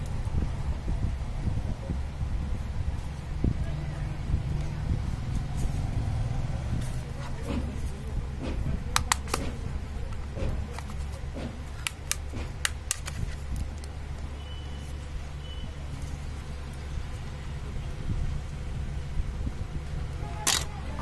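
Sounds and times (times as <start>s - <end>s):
plastic phone cover clicks: 8.9s - 9.6s, 11.8s - 13.2s.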